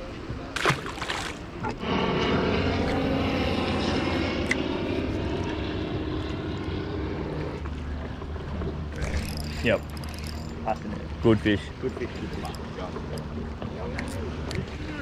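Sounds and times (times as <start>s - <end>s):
outboard motor running: 0.5s - 15.0s
fish splashing into water: 0.6s - 1.5s.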